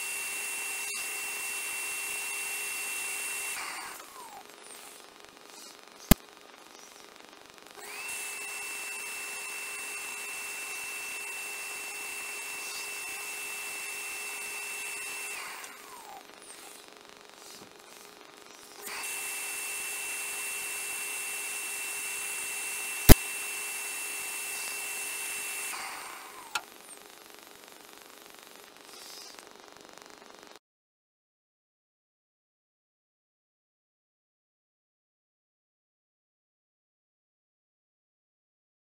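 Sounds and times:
vacuum motor whine: 0.0s - 7.1s, 7.7s - 27.0s.

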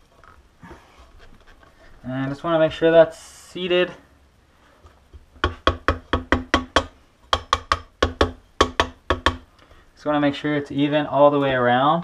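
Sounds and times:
mallet tapping metal: 5.4s - 9.4s.

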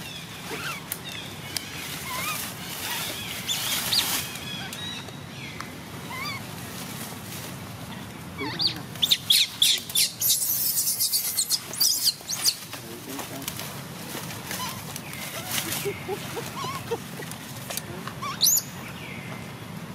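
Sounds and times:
dry leaves crackling: 0.0s - 18.7s
baby monkey squeaking calls: 0.4s - 0.8s, 1.9s - 5.0s, 6.1s - 6.4s, 8.4s - 12.7s, 14.5s - 17.0s, 18.2s - 18.7s.

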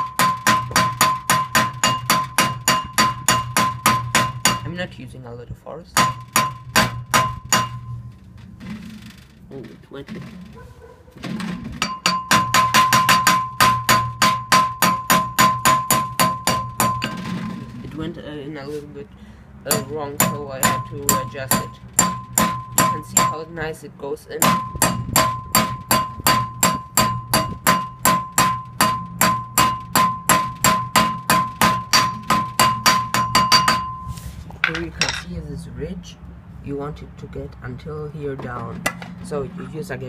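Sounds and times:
hammer tapping metal: 0.0s - 4.8s, 6.0s - 8.0s, 11.8s - 17.3s, 19.7s - 23.5s, 24.4s - 35.3s.

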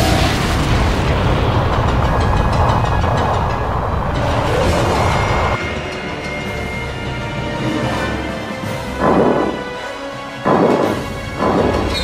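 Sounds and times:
rumbling explosion: 0.0s - 5.6s.

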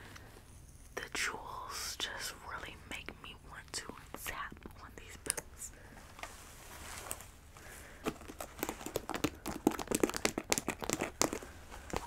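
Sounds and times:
soft fabric rustle: 3.6s - 9.0s, 11.2s - 12.0s.

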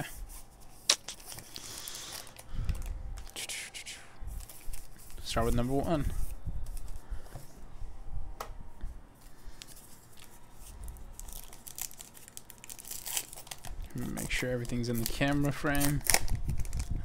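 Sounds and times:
foil wrapper crinkling and tearing: 0.8s - 3.4s, 9.6s - 17.0s.

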